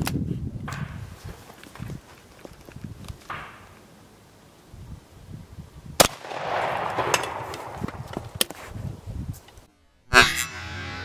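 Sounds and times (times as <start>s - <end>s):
gunshot echo: 6.0s - 8.4s
shotgun shot: 6.0s - 8.4s.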